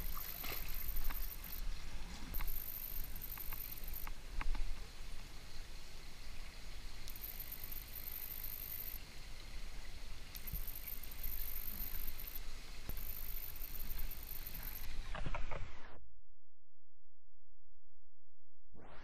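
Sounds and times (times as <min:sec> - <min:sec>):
small splashes and knocks: 0:00.0 - 0:02.4.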